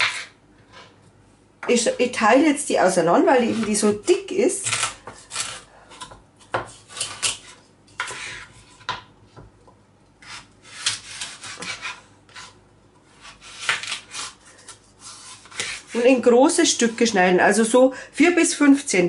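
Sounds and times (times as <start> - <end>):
knife cutting carrots: 10.2 - 16.1.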